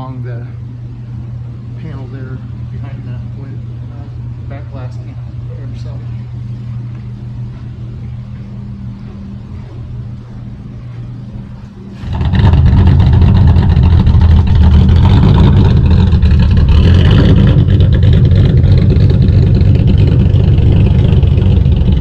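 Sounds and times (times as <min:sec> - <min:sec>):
car engine running loudly: 0:09.4 - 0:22.0.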